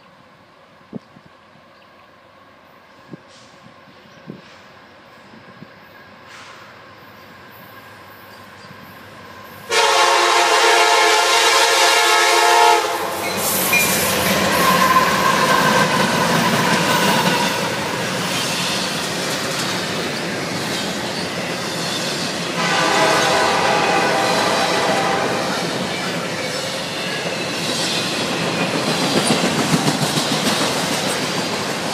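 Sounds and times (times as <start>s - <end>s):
train air horn blast: 9.7s - 13.7s, 22.6s - 25.8s
locomotives passing at speed: 12.5s - 31.9s.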